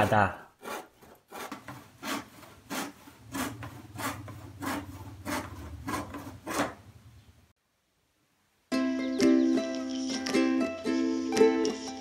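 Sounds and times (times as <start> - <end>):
handsaw cutting plywood: 0.6 - 6.9.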